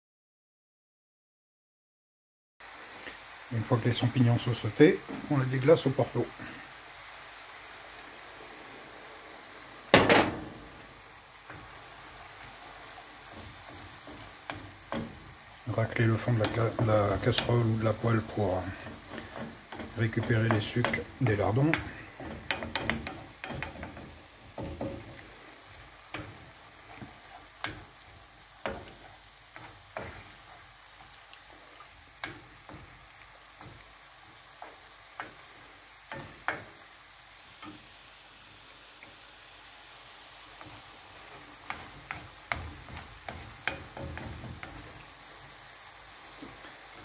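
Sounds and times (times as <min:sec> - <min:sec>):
mushrooms sizzling in a frying pan: 0:02.6 - 0:47.0
wooden spatula scraping a pan: 0:11.4 - 0:36.8, 0:40.5 - 0:47.0.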